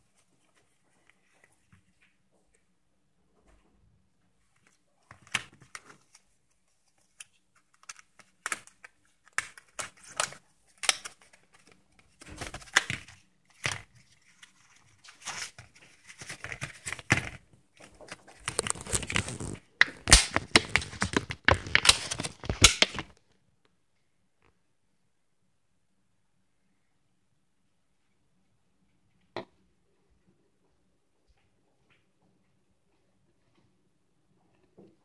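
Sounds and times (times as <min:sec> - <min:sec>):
plastic blister pack crackling: 0:15.0 - 0:23.2.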